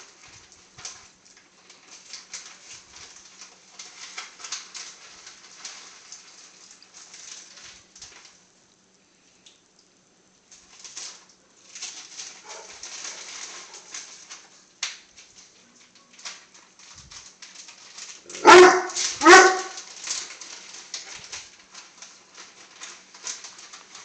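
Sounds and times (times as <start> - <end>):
dog barking: 12.4 - 12.8, 18.3 - 19.8.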